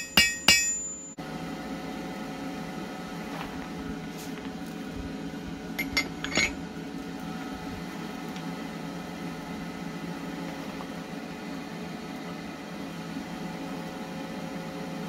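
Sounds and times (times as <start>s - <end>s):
metal clinks on anvil: 0.0s - 1.2s, 5.8s - 6.6s
steady low hum: 0.0s - 15.0s.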